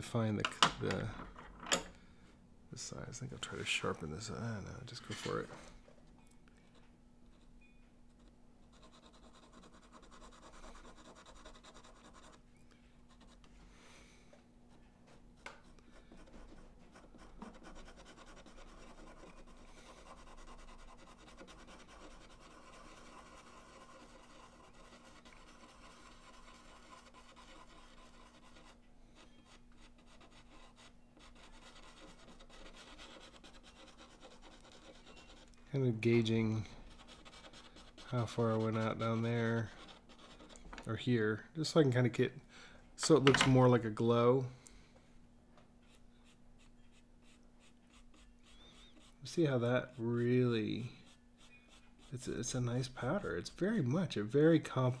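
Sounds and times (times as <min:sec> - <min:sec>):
pencil scratching on paper: 0:08.1 - 0:12.4, 0:15.1 - 0:35.6, 0:36.2 - 0:40.6, 0:46.2 - 0:52.6.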